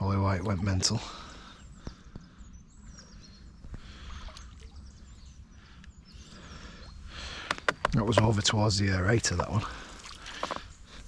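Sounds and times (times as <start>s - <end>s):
faint bird chirps: 0.0s - 8.0s.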